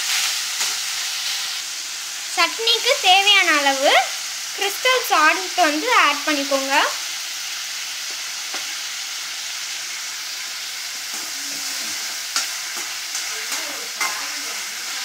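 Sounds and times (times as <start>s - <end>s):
vegetables sizzling in oil: 0.0s - 15.0s
ladle stirring and scraping pan: 10.9s - 15.0s.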